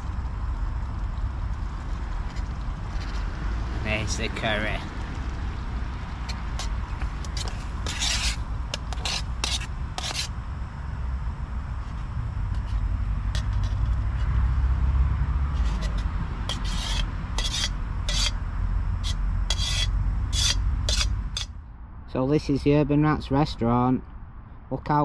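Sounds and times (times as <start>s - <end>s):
motorway traffic rumble: 0.0s - 25.0s
metal spoon scraping pot: 6.3s - 10.3s, 12.5s - 14.4s, 15.5s - 18.4s, 19.0s - 21.5s.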